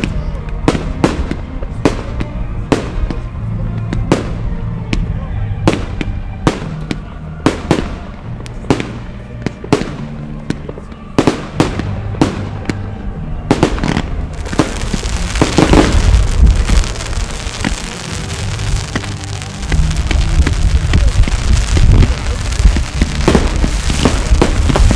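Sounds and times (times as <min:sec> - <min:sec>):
fireworks bangs and cracks: 0:00.0 - 0:24.9
fireworks crackling: 0:00.0 - 0:24.9
low rumble: 0:14.0 - 0:24.9.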